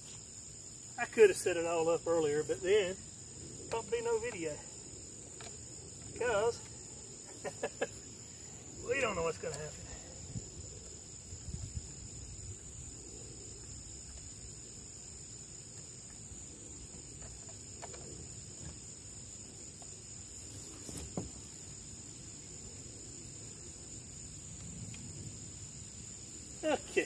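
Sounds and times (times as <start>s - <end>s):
crickets chirping: 0.0s - 27.0s.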